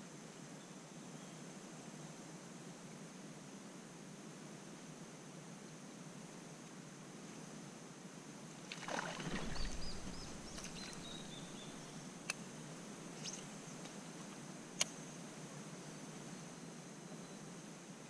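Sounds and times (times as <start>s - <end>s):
water splashing: 8.7s - 12.1s
faint high chirps: 8.9s - 12.1s.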